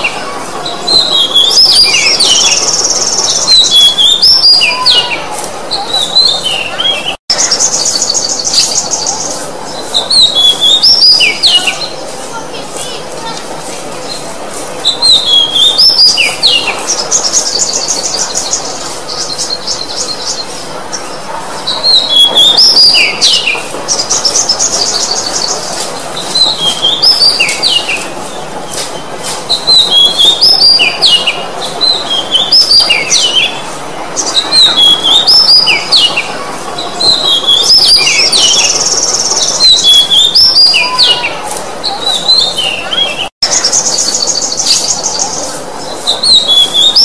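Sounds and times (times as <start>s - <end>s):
bird singing whistled notes: 0.9s - 5.2s, 5.8s - 11.9s, 29.5s - 33.5s, 34.2s - 36.2s, 37.0s - 41.2s, 46.1s - 47.0s.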